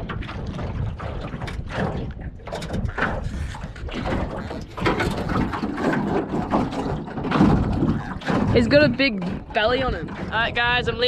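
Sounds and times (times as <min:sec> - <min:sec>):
knocks and rattles in metal boat: 0:00.0 - 0:11.0
water splashing: 0:00.0 - 0:11.0
wind on microphone: 0:00.0 - 0:11.0.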